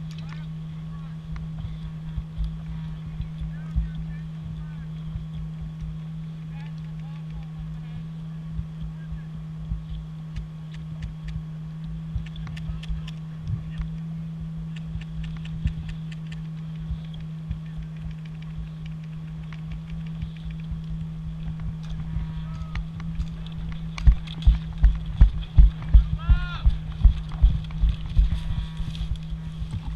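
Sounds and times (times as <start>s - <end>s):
steady low hum: 0.0s - 29.9s
wind rumble on microphone: 0.0s - 29.9s
sharp clicks: 9.8s - 14.1s, 14.7s - 28.3s.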